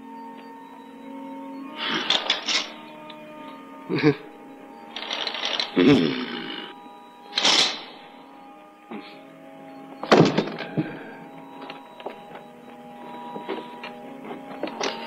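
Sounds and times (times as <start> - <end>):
faint sustained background tones: 0.0 - 15.0.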